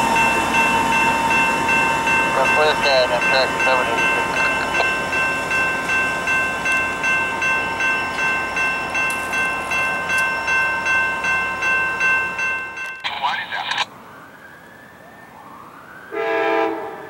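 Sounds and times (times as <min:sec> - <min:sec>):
crossing bell ringing: 0:00.0 - 0:13.5
passenger train running: 0:00.0 - 0:14.0, 0:16.1 - 0:17.0.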